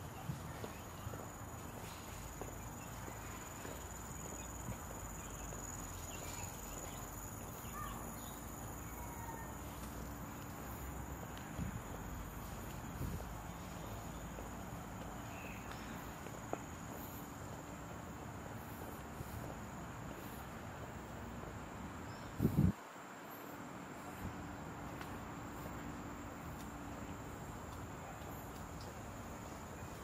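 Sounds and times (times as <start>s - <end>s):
faint bird chirps: 0.0s - 10.9s
insects droning: 0.0s - 30.0s.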